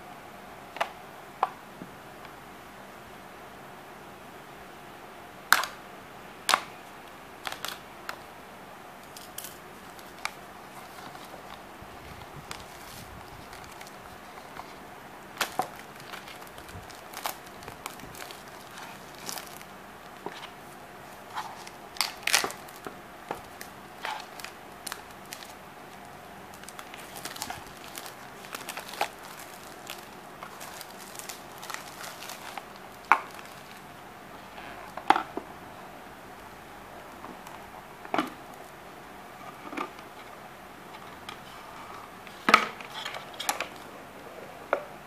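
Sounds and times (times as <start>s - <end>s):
plastic film crinkling: 6.8s - 8.3s, 9.0s - 34.0s.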